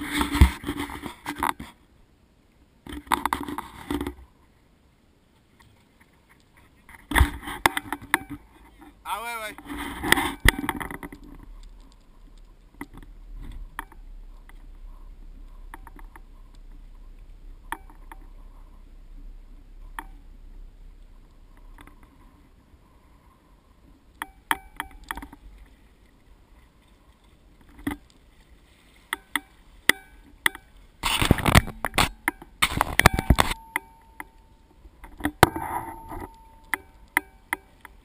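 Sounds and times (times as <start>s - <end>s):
low rumble: 10.5s - 24.2s.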